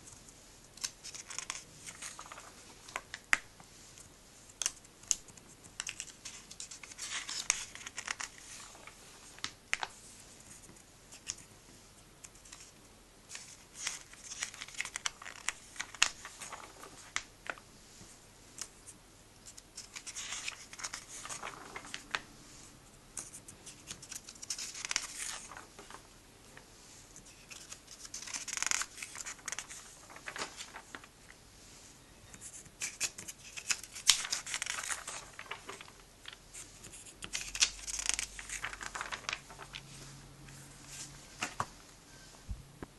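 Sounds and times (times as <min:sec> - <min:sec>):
pages turning: 0:00.8 - 0:03.4, 0:04.5 - 0:11.5, 0:13.3 - 0:18.7, 0:19.5 - 0:22.3, 0:23.2 - 0:31.2, 0:32.6 - 0:41.8
paper sheets tapping and scraping: 0:27.3 - 0:31.1, 0:32.7 - 0:39.9.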